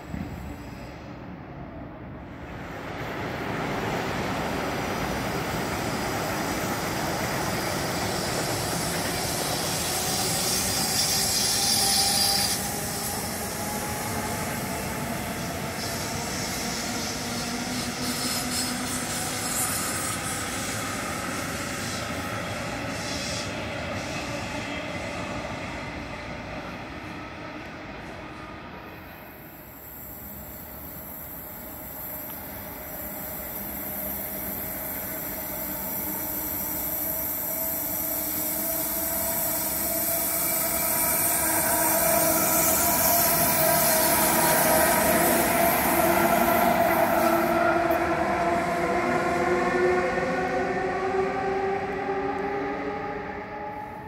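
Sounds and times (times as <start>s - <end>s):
train rolling rumble: 0.0s - 54.0s
high-pitched wheel squeal: 9.6s - 13.3s.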